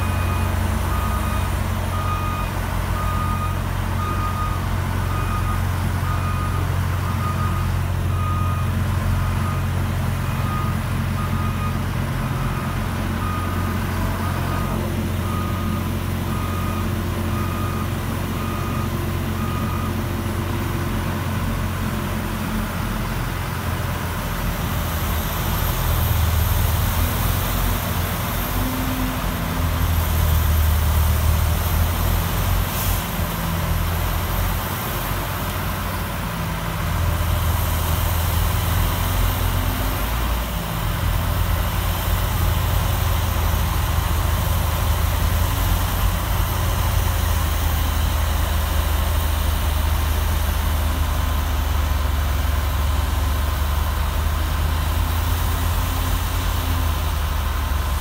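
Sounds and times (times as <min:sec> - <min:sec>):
reverse alarm beeping: 0:00.0 - 0:20.0
high whine of snow blower: 0:00.0 - 0:58.0
wheel loader engine running: 0:00.0 - 0:58.0.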